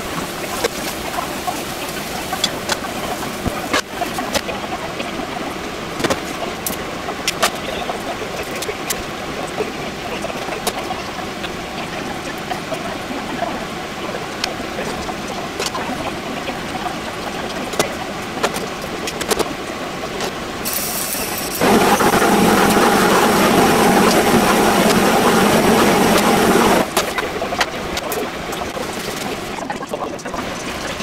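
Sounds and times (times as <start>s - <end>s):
pot of water boiling: 0.0s - 31.0s
loud rushing hiss: 20.6s - 27.0s.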